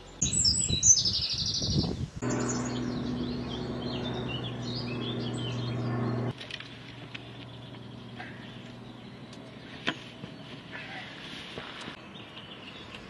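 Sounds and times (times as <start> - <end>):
small birds chirping: 0.0 - 13.0
steady low hum: 2.2 - 12.0.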